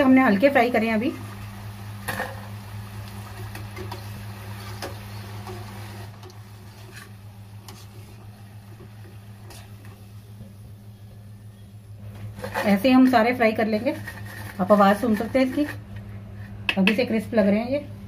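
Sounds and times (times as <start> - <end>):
food frying in hot oil: 0.0 - 10.7
steady low hum: 0.0 - 18.0.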